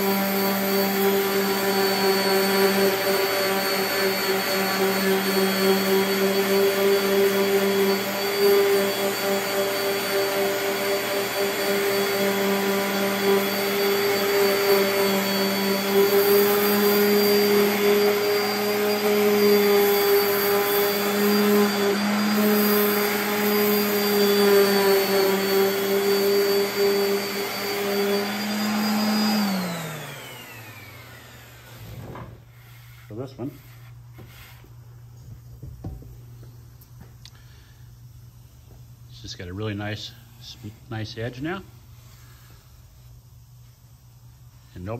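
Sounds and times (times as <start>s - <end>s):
orbital sander running: 0.0s - 34.7s
sander spinning down: 0.0s - 34.7s.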